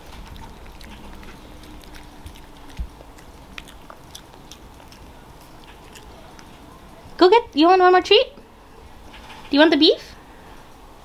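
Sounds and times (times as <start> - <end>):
dog chewing a treat: 0.0 - 7.3.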